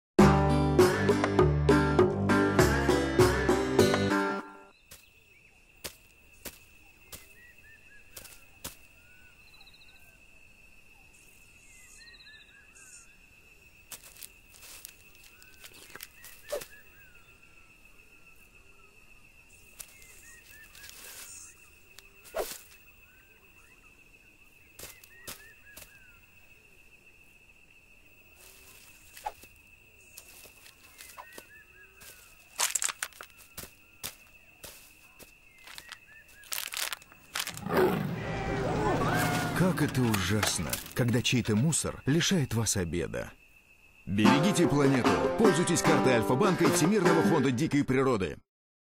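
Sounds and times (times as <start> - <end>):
small birds chirping: 4.7 - 38.2
sharp clicks and rustles: 32.5 - 33.3, 35.6 - 37.6.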